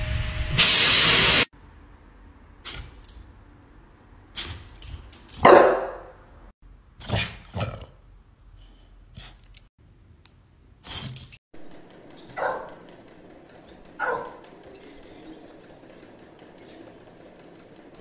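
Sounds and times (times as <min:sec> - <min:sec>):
dog barking: 0:05.4 - 0:06.2, 0:12.3 - 0:12.8, 0:14.0 - 0:14.4.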